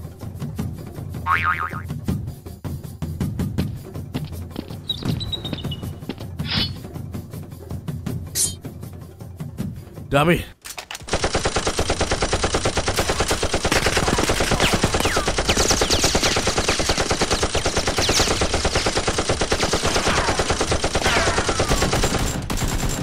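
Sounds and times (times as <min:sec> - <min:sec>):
rapid machine-gun fire: 0:11.1 - 0:23.0.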